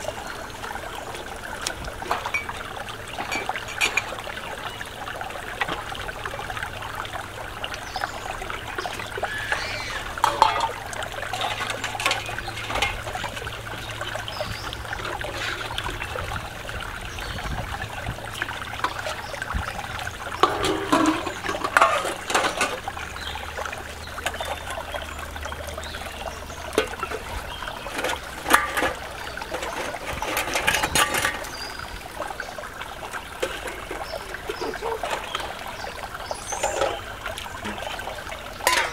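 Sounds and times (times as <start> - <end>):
stream water trickling: 0.0 - 38.9
metal dishes clinking: 2.1 - 4.2, 10.2 - 13.4, 20.4 - 22.8, 27.9 - 31.6, 36.4 - 37.8, 38.6 - 38.9.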